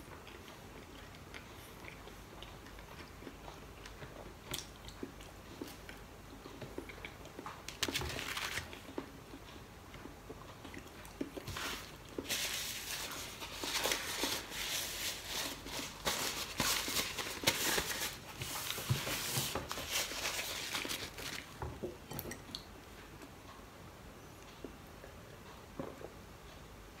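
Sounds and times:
paper napkin rustling: 7.8 - 8.7, 11.6 - 21.5.

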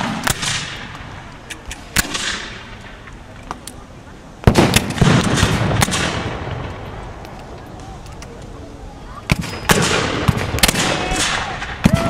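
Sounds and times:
muskets firing with echo: 0.0 - 3.2, 4.4 - 7.9, 9.3 - 12.0.

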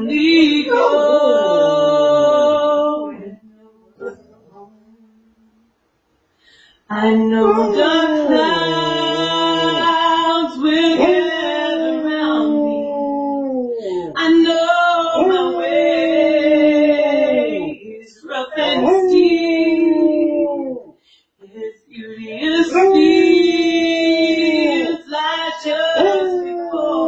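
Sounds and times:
woman singing: 0.0 - 4.0, 6.9 - 13.0, 14.1 - 20.2, 21.5 - 27.0
dog howling: 0.1 - 3.4, 4.0 - 5.1, 6.9 - 14.4, 15.0 - 17.8, 18.6 - 20.9, 22.4 - 25.0, 26.0 - 27.0.

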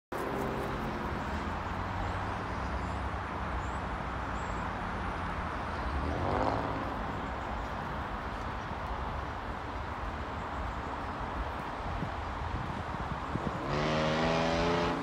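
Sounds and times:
traffic rumble: 0.1 - 15.0
vehicle passing close by: 5.4 - 7.4, 13.1 - 15.0.

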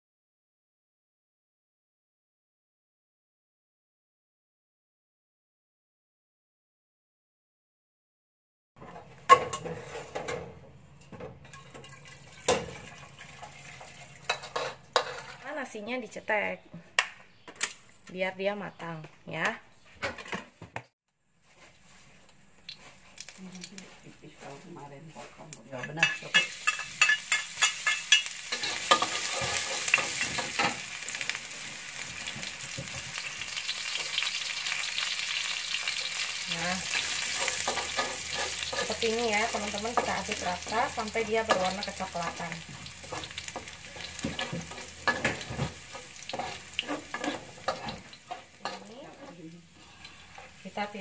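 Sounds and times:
metal spatula scraping a wok: 8.8 - 10.4, 14.3 - 15.5, 25.2 - 32.4, 35.3 - 51.0
garlic sizzling in hot oil: 22.7 - 24.0, 26.0 - 51.0.

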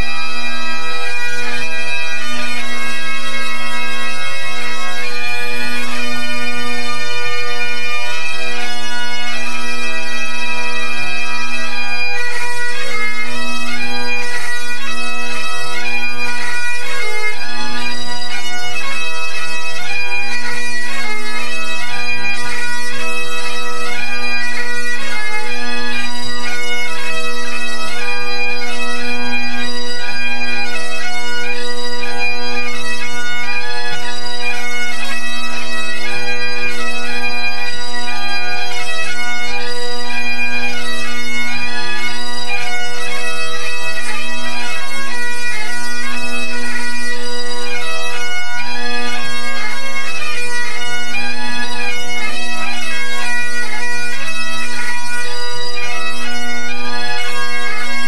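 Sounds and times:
bagpipes playing a tune: 0.0 - 58.0.

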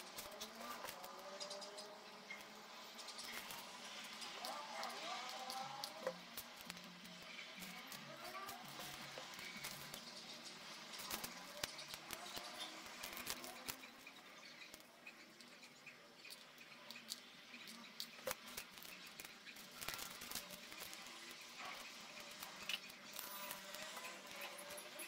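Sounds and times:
corn husk rustling and crackling: 0.0 - 14.9, 16.2 - 25.0
small clicks and taps: 3.1 - 21.4.

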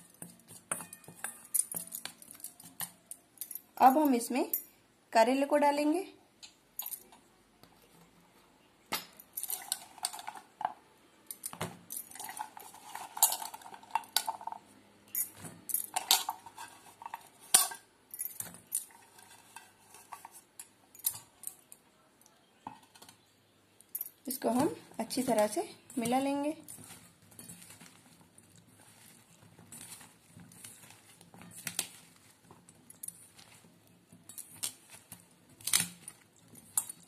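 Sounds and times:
slices clattering in metal bowl: 0.0 - 3.2, 11.3 - 20.2.

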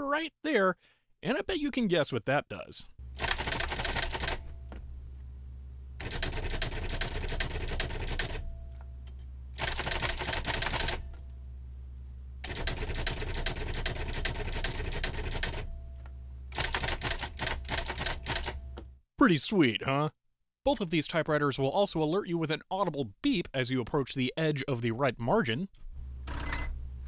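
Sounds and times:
steady low hum: 3.0 - 16.6, 25.9 - 27.0
electronic typewriter clicking: 3.2 - 4.6, 6.0 - 8.5, 9.6 - 11.2, 12.4 - 15.7, 16.5 - 18.7.

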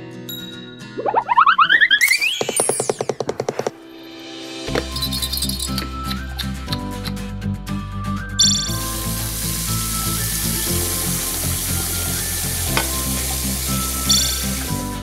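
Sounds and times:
background music: 0.0 - 15.0
toy faucet running water: 8.4 - 15.0.

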